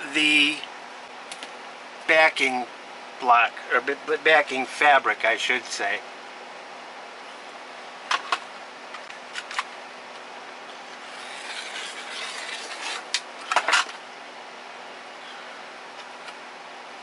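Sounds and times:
soft sliding rub: 0:11.1 - 0:13.0.

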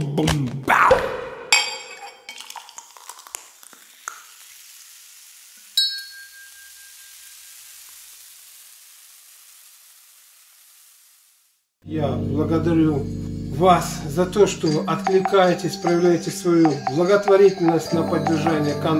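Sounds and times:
soft hiss: 0:03.6 - 0:11.8
bright glass-like ding: 0:05.8 - 0:07.5
tinkling glassy chimes: 0:05.8 - 0:07.8.

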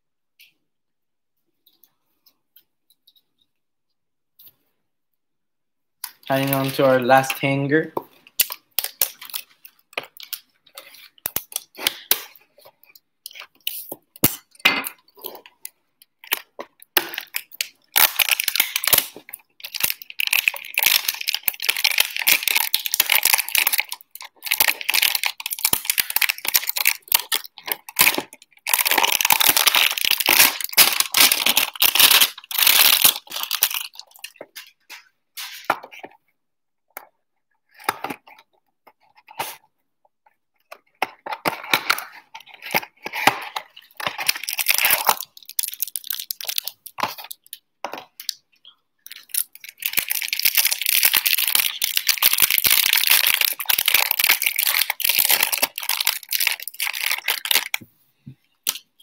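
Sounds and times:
plastic wrapping crinkling: 0:06.0 - 0:36.2, 0:40.2 - 0:57.8.

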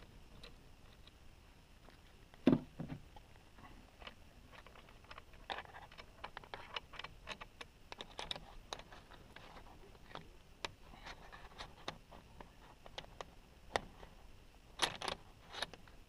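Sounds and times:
tool set down with thump: 0:02.4 - 0:03.0.

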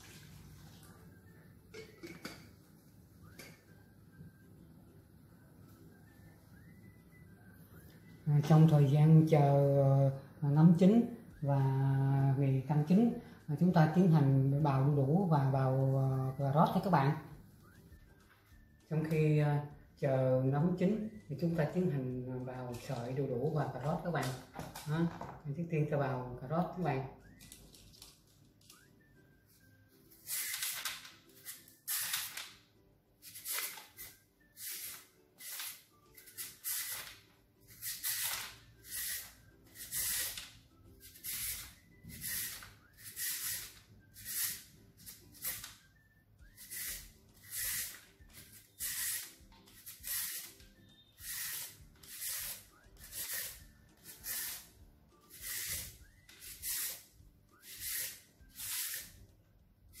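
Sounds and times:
carrot grating on metal grater: 0:37.7 - 0:40.4, 0:41.1 - 0:45.6, 0:46.6 - 0:50.6, 0:51.2 - 0:57.0, 0:57.6 - 0:59.1.

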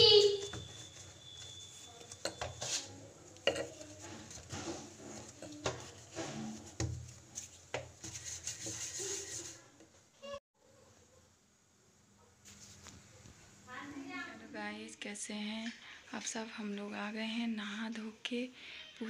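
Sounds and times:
steel utensils rubbing and scraping: 0:00.3 - 0:09.7
utensils clinking: 0:00.4 - 0:06.8.

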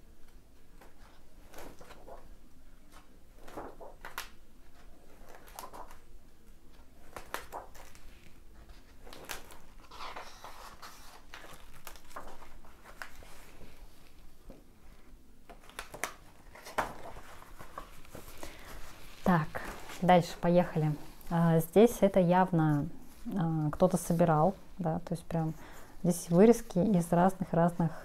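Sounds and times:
paper pages rustling and flipping: 0:00.2 - 0:06.1, 0:06.7 - 0:14.6, 0:15.5 - 0:21.3.

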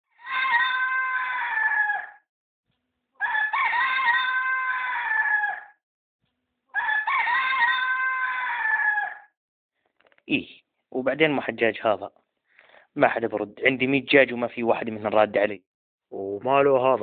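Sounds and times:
rooster crowing: 0:00.2 - 0:02.2, 0:03.2 - 0:05.8, 0:06.7 - 0:09.3.

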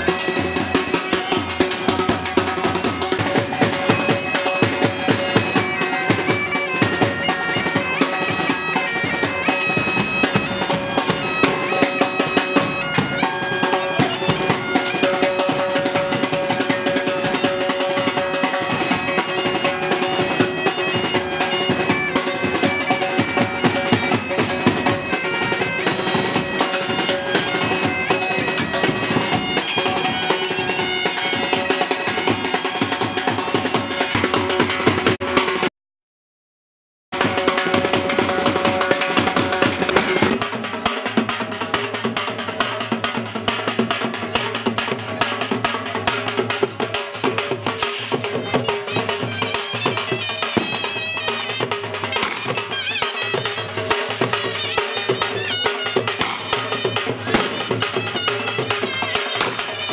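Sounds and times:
bagpipes playing: 0:00.0 - 0:34.4, 0:48.3 - 0:59.9
drum beating: 0:00.0 - 0:35.7, 0:37.1 - 0:59.9.

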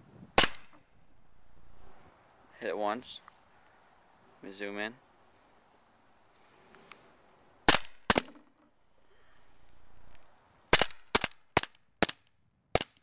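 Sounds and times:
bb pistol shots: 0:00.4 - 0:00.8, 0:07.6 - 0:08.4, 0:10.7 - 0:13.0.

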